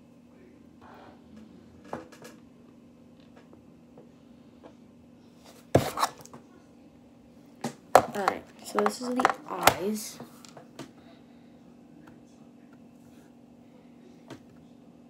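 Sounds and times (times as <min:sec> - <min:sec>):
faint steady hum: 0:00.0 - 0:15.0
clicks and knocks of objects: 0:07.6 - 0:10.9.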